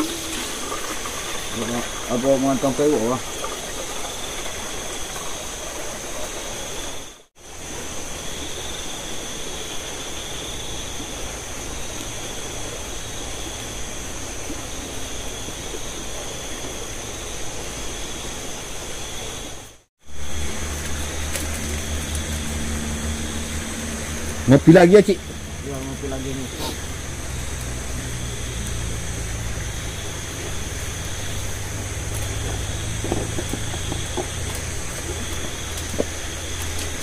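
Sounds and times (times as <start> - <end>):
running water: 0.0 - 37.0
low steady hum: 20.1 - 37.0.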